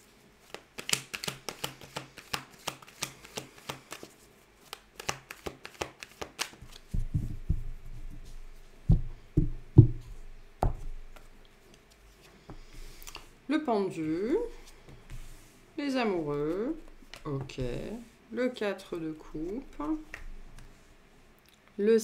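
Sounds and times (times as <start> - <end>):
cards shuffling: 0.4 - 8.5, 16.0 - 18.0, 19.2 - 20.8.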